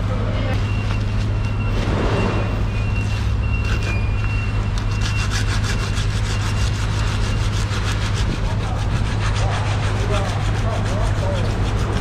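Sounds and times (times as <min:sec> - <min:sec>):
low mechanical hum: 0:00.0 - 0:12.0
knife sawing through fish: 0:04.8 - 0:12.0.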